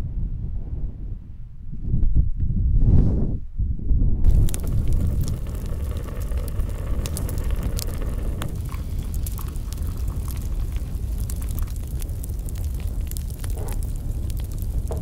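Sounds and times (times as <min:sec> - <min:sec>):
low rumble: 0:00.0 - 0:15.0
campfire crackling: 0:04.2 - 0:15.0.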